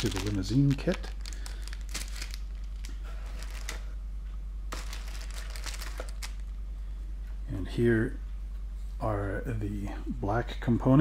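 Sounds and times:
plastic bag crinkling: 0.0 - 4.0, 4.7 - 6.6
steady low hum: 0.0 - 11.0.

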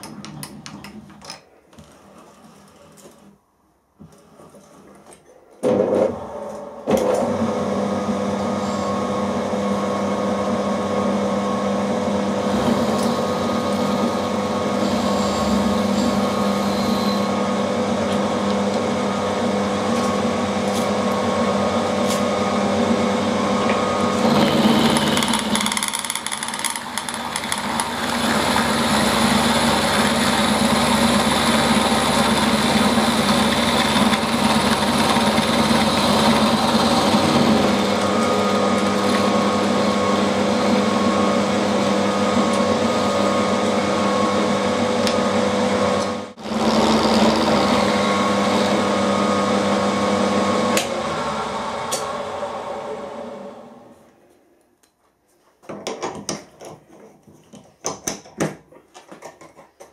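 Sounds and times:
milling machine motor hum: 6.3 - 54.0
end mill cutting metal: 12.3 - 53.7.

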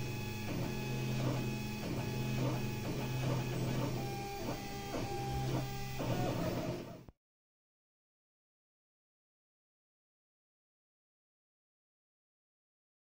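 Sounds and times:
steady low hum: 0.0 - 7.0
stepper motors whining: 0.0 - 7.1.

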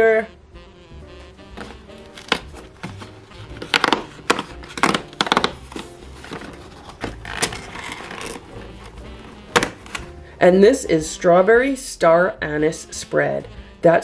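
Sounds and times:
rustling scrape of cardboard: 1.6 - 10.0
cardboard tearing with sharp cracks: 1.6 - 10.1.

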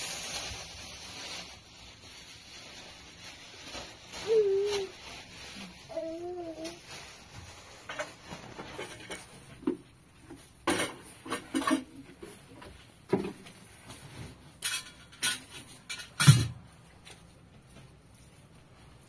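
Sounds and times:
dishes knocking and clattering: 10.6 - 13.4, 14.6 - 16.6.

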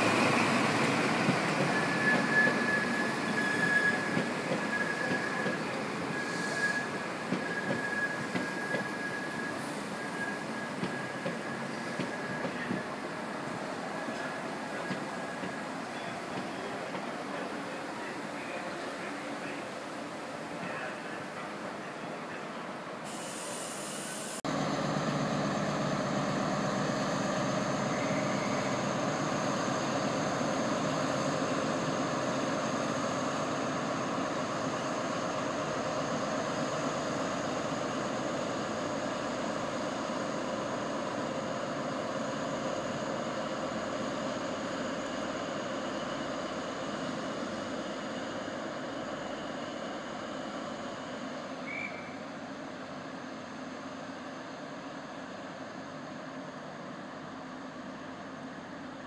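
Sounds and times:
diesel locomotive engine running: 0.0 - 22.4, 24.5 - 59.0
brief hiss: 23.1 - 24.4.

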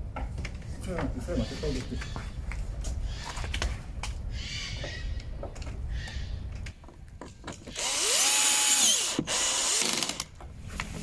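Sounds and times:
cordless drill driving a screw: 7.7 - 10.3.

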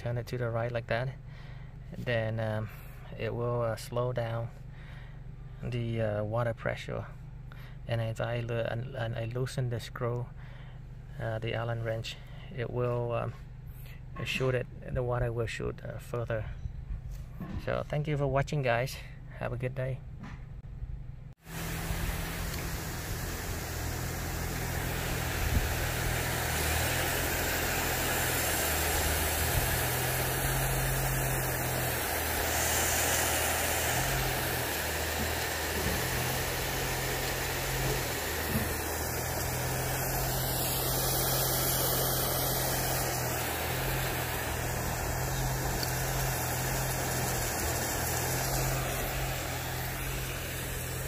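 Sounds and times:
low steady rumble: 0.0 - 51.0
sprinkler spraying water: 21.4 - 51.0.

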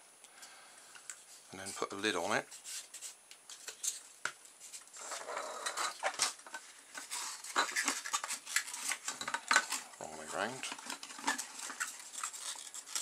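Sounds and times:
scratchy foam rustles: 1.2 - 5.7.

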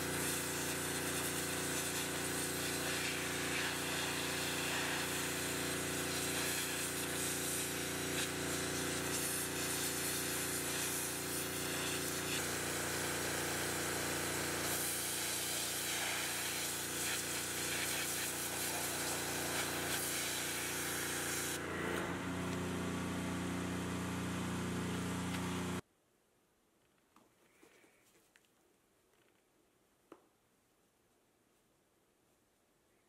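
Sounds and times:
pressure washer spray hissing: 0.0 - 21.6
pressure washer motor hum: 0.0 - 25.8.

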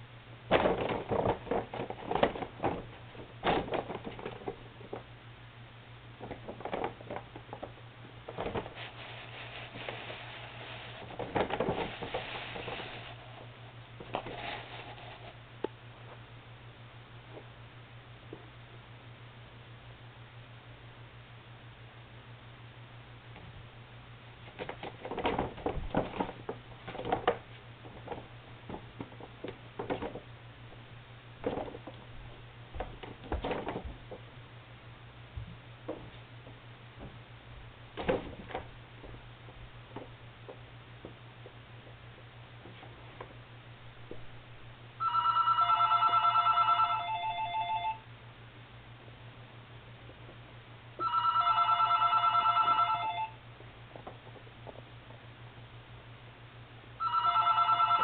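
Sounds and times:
paper bag crinkling: 8.4 - 13.4, 14.0 - 15.4.

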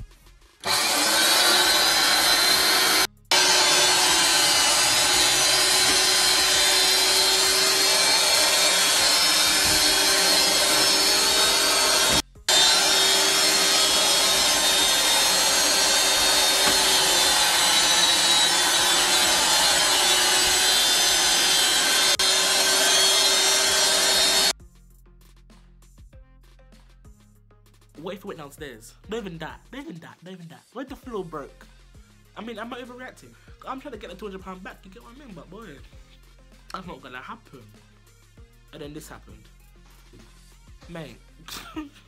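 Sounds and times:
vacuum motor running loud: 0.6 - 24.5.

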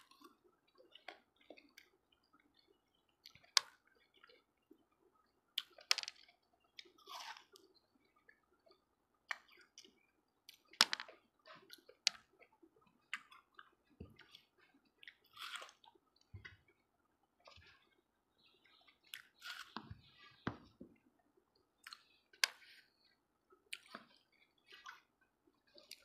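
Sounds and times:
watermelon being bitten and chewed: 13.0 - 16.0, 19.0 - 20.4.

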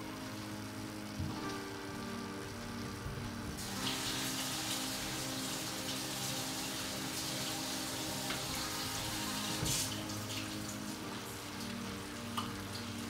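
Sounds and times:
soft background music: 0.0 - 13.0
spinach sizzling in oil: 0.0 - 13.0.

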